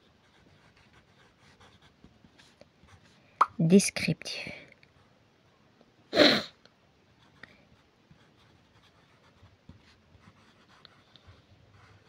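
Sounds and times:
pencil scratching on paper: 0.0 - 3.2, 7.2 - 12.0.

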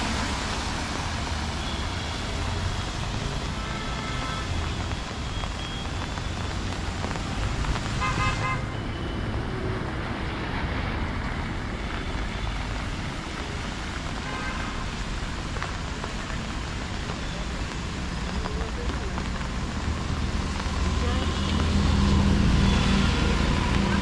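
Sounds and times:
traffic rumble on wet roads: 0.0 - 24.0
car horn toot: 8.0 - 8.8.

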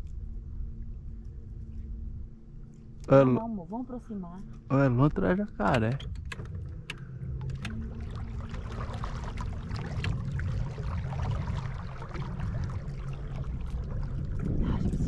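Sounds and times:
boat motor humming: 0.0 - 15.0
water splashing against hull: 5.6 - 15.0.

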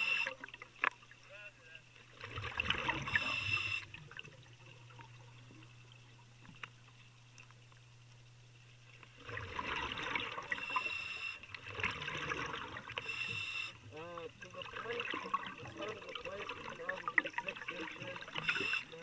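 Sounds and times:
low steady hum: 0.0 - 19.0
underwater air bubbles gurgling: 2.0 - 6.9, 9.1 - 19.0.

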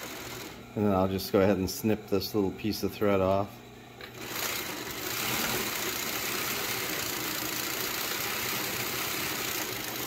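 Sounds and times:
sewing machine whirring: 0.0 - 1.0, 4.0 - 10.0.

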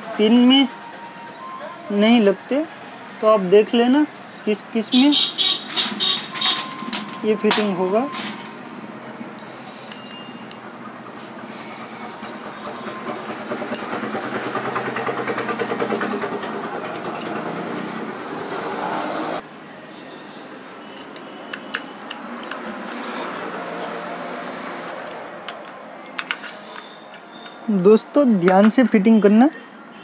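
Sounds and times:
metal clicks of hand tools: 21.0 - 23.0.

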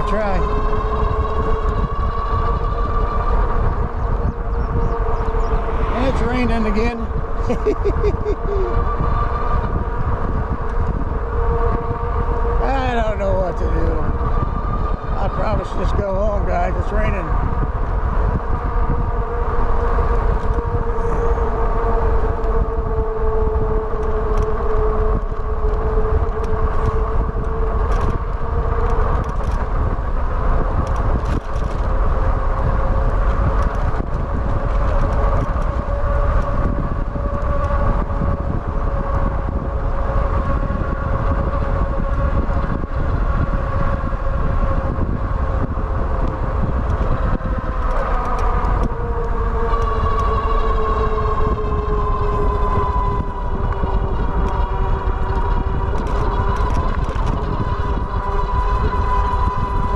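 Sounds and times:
electric motor whining: 0.0 - 59.9
wind rumble on microphone: 0.0 - 59.9.

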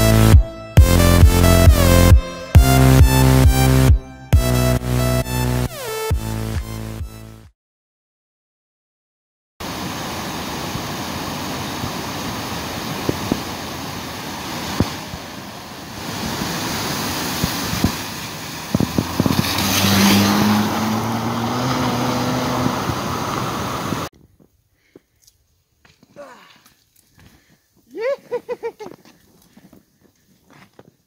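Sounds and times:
car splashing through water: 9.6 - 24.1
floodwater rushing: 9.6 - 24.1
car engine: 17.9 - 24.1.

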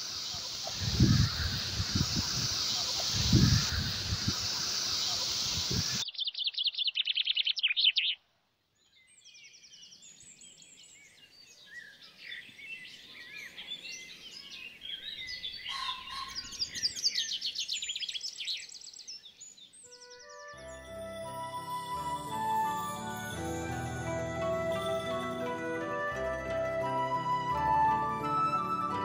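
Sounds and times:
songbirds trilling: 0.0 - 8.2, 8.9 - 20.6
bird chirps and whistles: 5.8 - 8.2.

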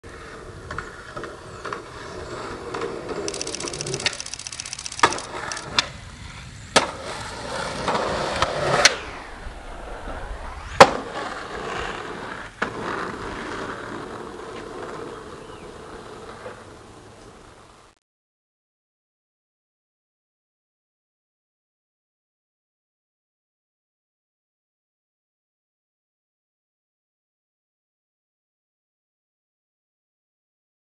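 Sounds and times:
skateboard wheels rolling on concrete: 0.0 - 18.0
hard skateboard impact: 6.7 - 9.0.

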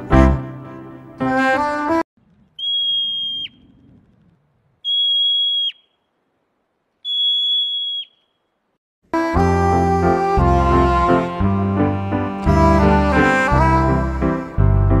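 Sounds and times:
marmot alarm whistles: 2.6 - 3.8, 4.8 - 6.0, 7.0 - 8.4.

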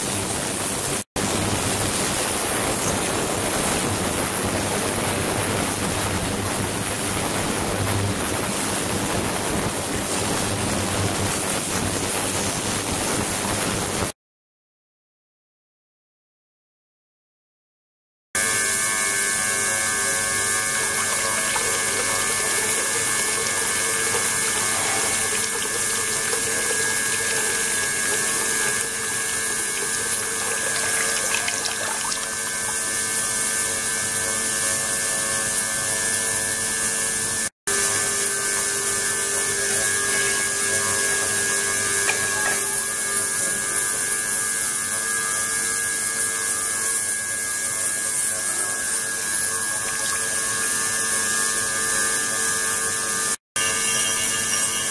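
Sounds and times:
water flowing: 20.6 - 33.4, 38.2 - 42.9, 49.7 - 50.6.

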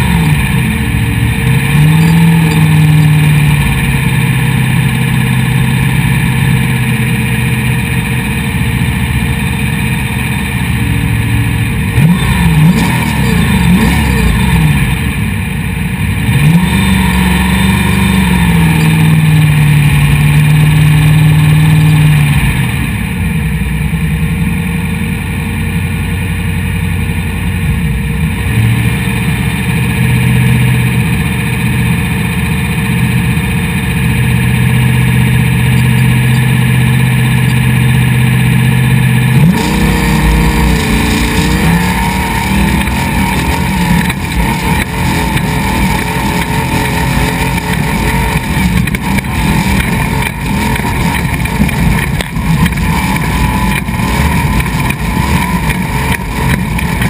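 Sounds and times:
truck engine idling and revving: 0.0 - 57.0
tyres on gravel: 39.2 - 57.0.

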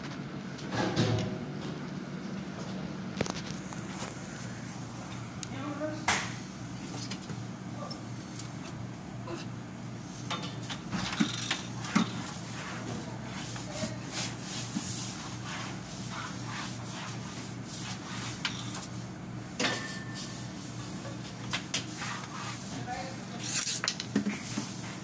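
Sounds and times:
steady low hum: 0.0 - 23.4
rubbing and scraping on tiled floor: 21.8 - 25.0.

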